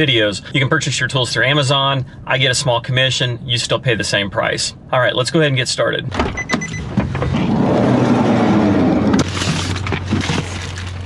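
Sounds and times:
short beeps: 6.4s - 6.9s
rumbling scrape: 7.0s - 11.0s.

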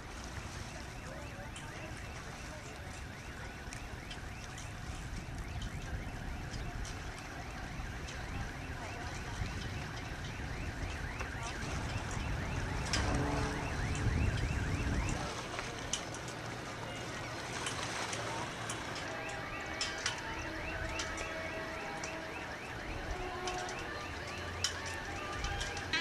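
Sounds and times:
wind rumbling on microphone: 3.0s - 16.0s.

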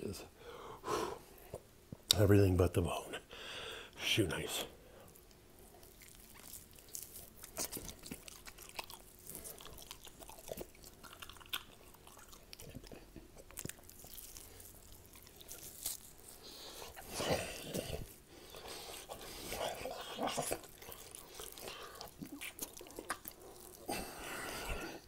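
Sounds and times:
man chewing raw meat: 5.0s - 25.0s.

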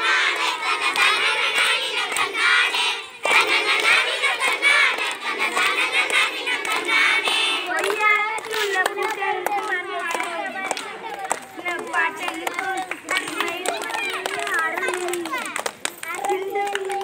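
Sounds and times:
girls singing together: 0.0s - 10.9s
hands clapping: 0.0s - 17.0s.

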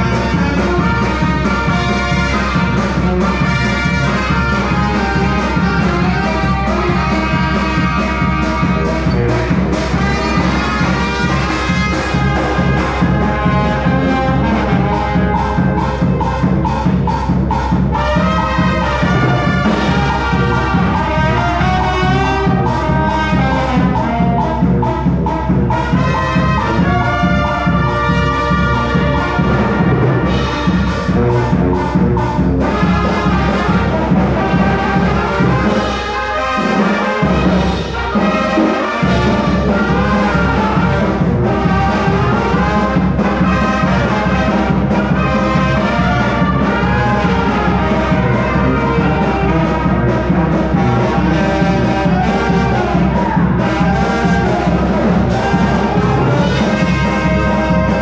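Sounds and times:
brass band playing dance music: 0.0s - 58.0s.

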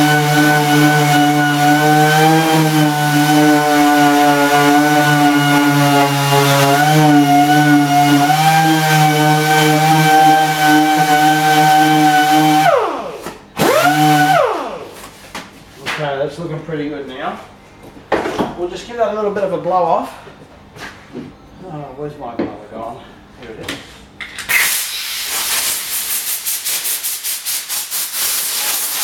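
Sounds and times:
orbital sander running: 0.0s - 14.9s.

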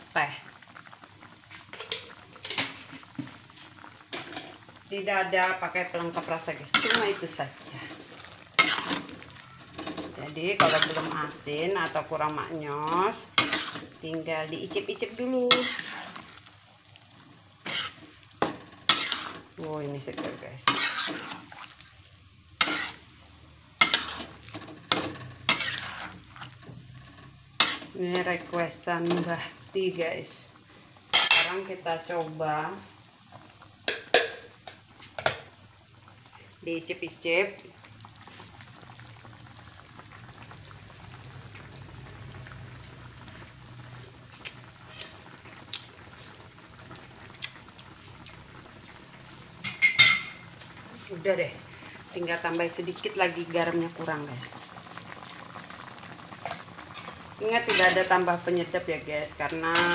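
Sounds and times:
broth simmering: 0.0s - 59.9s
spatula scraping a wok: 6.7s - 12.0s, 13.0s - 16.3s, 17.6s - 21.8s, 22.6s - 23.2s, 23.8s - 29.3s, 31.1s - 31.6s, 56.4s - 58.4s.

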